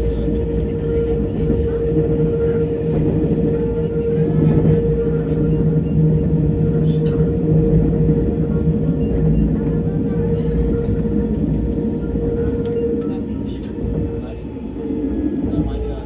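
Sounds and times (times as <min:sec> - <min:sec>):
even-pitched hum: 0:00.0 - 0:16.0
tram rumbling: 0:00.0 - 0:16.0.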